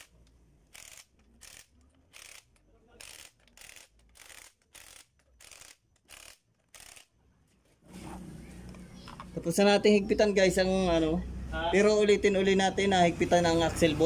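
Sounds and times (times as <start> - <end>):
impact wrench hammering bursts: 0.0 - 7.2.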